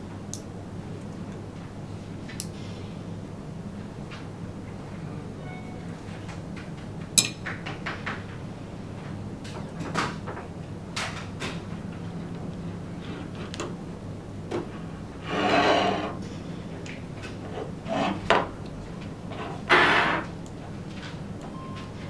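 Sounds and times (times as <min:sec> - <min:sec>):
metallic sliding noise: 0:15.2 - 0:16.2.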